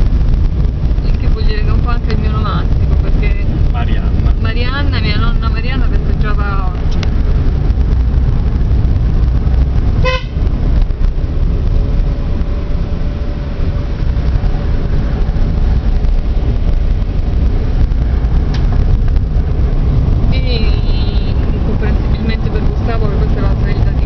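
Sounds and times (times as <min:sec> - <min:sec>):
car engine and tyre rumble: 0:00.0 - 0:24.0
car horn toot: 0:10.0 - 0:10.5, 0:20.6 - 0:21.6.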